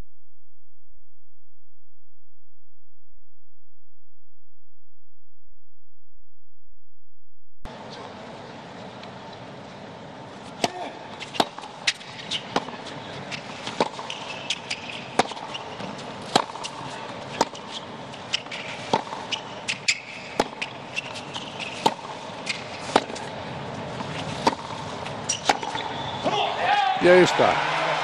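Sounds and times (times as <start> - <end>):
low stadium background: 26.0 - 28.0.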